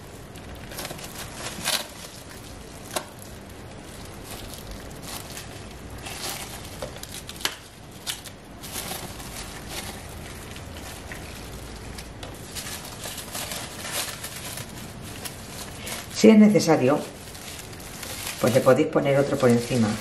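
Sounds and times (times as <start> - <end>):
cling film crinkling: 0.0 - 20.0.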